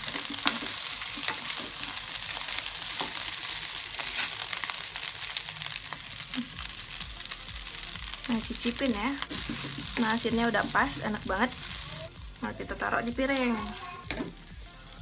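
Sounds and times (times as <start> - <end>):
rice sizzling in wok: 0.0 - 15.0
spatula scraping and tapping: 9.2 - 10.9.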